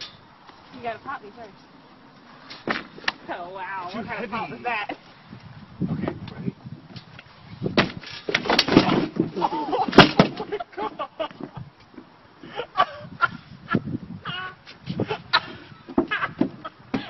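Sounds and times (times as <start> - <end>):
sharp thumps: 7.7 - 10.5
seesaw knocking and banging: 7.7 - 10.6, 15.9 - 17.0.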